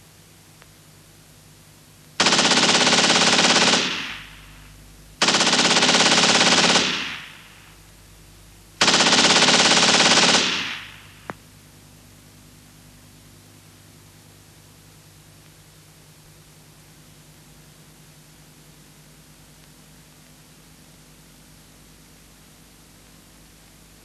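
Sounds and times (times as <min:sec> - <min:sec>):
machine-gun fire: 0:02.2 - 0:07.8, 0:08.8 - 0:11.3.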